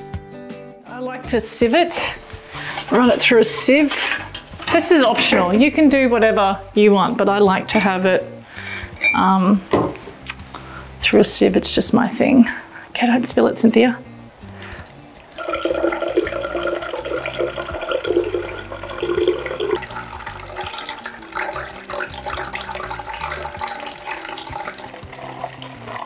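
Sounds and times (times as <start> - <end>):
juice pouring through a sieve: 14.6 - 26.0.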